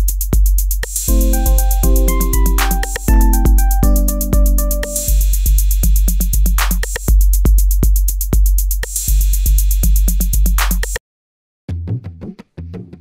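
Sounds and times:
electronic music with drum-machine beat: 0.0 - 10.9.

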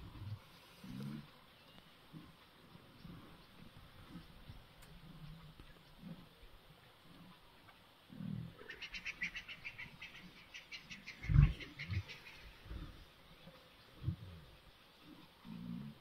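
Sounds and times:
lions grunting and growling: 0.0 - 1.4, 11.1 - 16.0.

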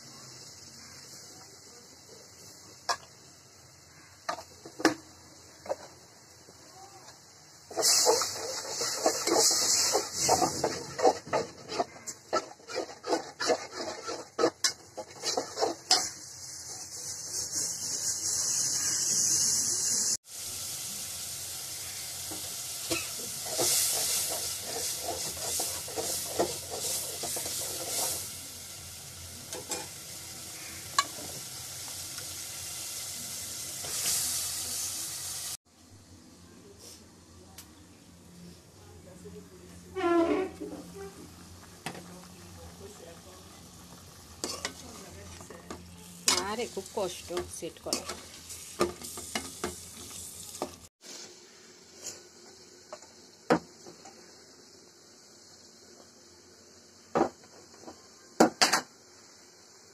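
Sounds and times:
paste sizzling in oil: 0.0 - 35.6, 39.9 - 58.4
metal utensil scraping pan: 7.7 - 19.4, 22.8 - 28.3, 29.5 - 30.0, 30.6 - 31.4, 40.0 - 42.0, 44.4 - 50.2.

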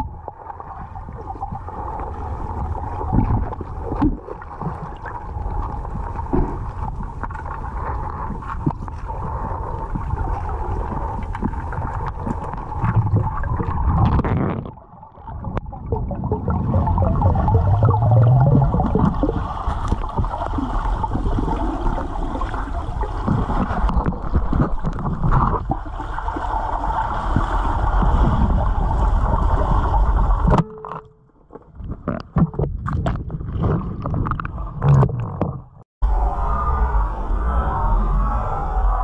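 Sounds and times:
muffled rumble of moving water: 0.0 - 39.0
clicks and knocks: 30.5 - 31.3.

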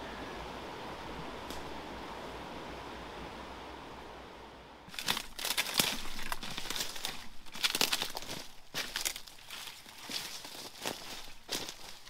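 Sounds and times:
dry leaves and twigs crunching: 4.9 - 12.0.

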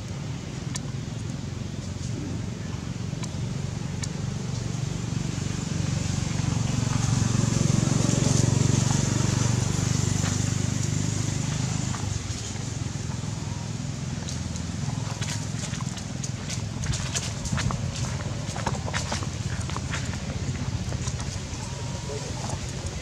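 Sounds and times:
vehicle passing by: 4.5 - 23.0.

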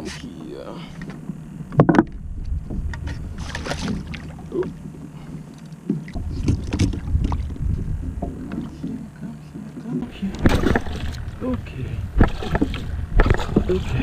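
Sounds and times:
water sloshing against kayak hull: 0.9 - 14.0
wind buffeting microphone: 1.3 - 4.6, 6.2 - 9.1, 10.1 - 14.0.

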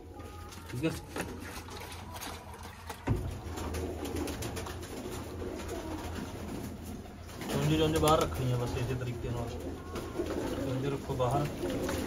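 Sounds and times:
pigeons cooing: 3.1 - 12.0.

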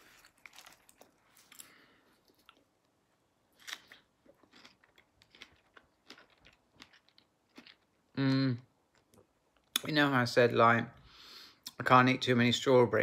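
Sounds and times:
person chewing: 0.0 - 2.9, 3.5 - 9.8.

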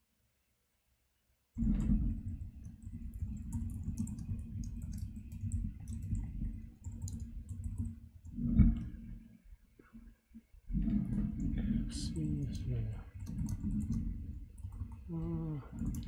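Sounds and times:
computer keyboard typing: 2.6 - 8.4, 12.1 - 16.0
steady low rumble: 11.1 - 14.4.

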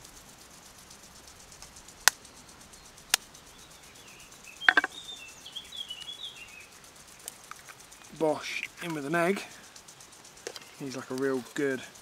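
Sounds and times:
bird chirping: 2.2 - 9.7.

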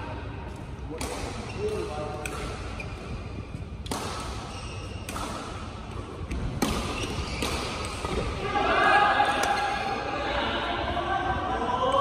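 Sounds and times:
sports hall background: 0.0 - 12.0
rackets striking shuttlecock: 0.9 - 8.3.

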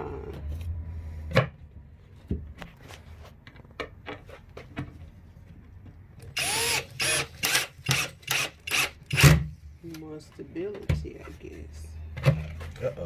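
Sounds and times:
cordless drill driving screw: 6.2 - 9.4.

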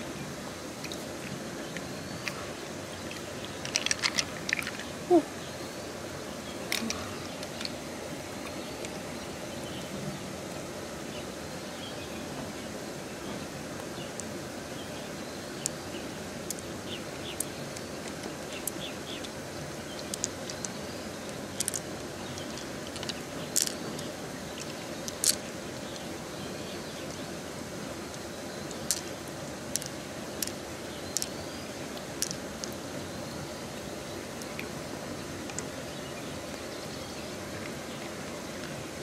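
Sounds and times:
running water: 0.0 - 39.0
pearls clicking together: 3.6 - 4.9, 20.0 - 26.1, 28.6 - 29.1, 29.7 - 31.4, 32.0 - 32.8.

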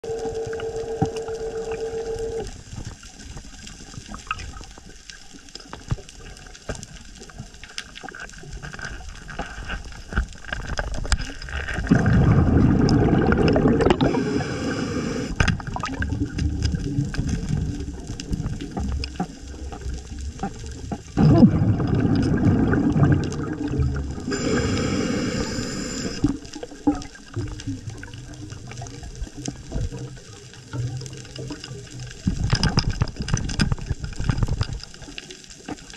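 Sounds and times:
steady hum: 0.0 - 2.5, 11.9 - 15.4, 22.8 - 26.3
scuba regulator bubbles gurgling: 0.0 - 9.6, 10.4 - 35.9
faint clicks from reef: 0.2 - 12.0, 12.9 - 21.2, 23.2 - 35.9.

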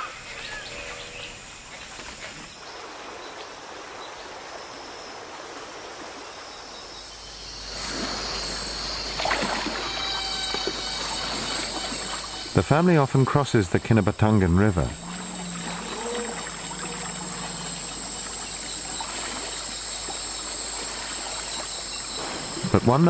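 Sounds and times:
high insect calls: 0.0 - 23.0
river water running: 0.0 - 23.0
sharp water splashes: 7.6 - 12.6, 14.7 - 23.0.

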